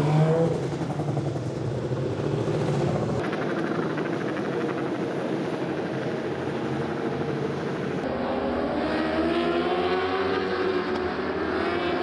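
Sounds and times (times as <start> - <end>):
motorcycles accelerating past: 8.0 - 12.0
racing motorcycle engines revving: 8.0 - 12.0.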